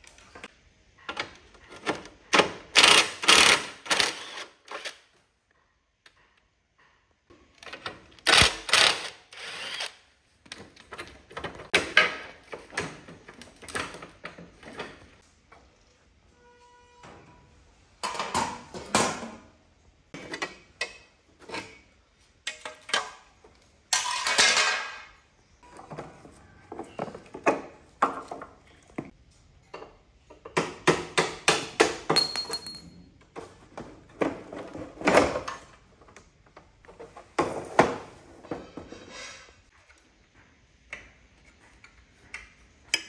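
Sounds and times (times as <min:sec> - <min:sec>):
metal parts clanking: 0:32.2 - 0:33.0.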